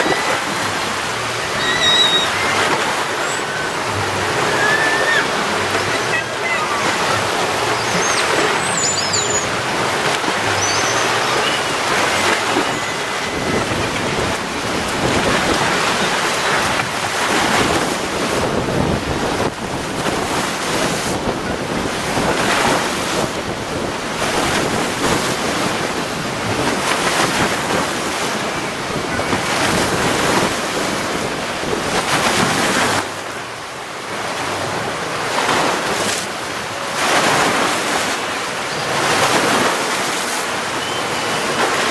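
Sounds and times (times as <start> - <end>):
waves washing: 0.0 - 41.9
wind buffeting microphone: 13.2 - 33.0.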